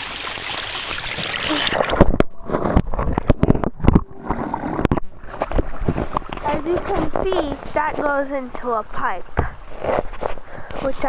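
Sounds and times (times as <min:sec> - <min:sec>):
water splashing: 0:00.0 - 0:07.9.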